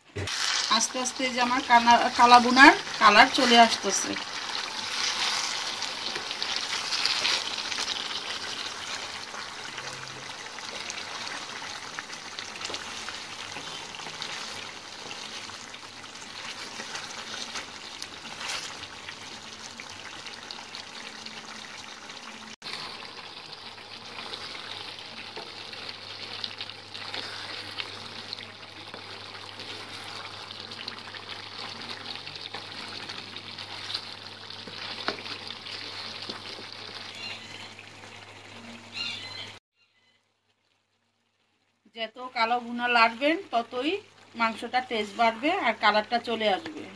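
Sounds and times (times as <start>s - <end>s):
meat sizzling in a pan: 0.2s - 39.4s
wooden spatula stirring: 1.4s - 19.4s, 22.6s - 38.3s.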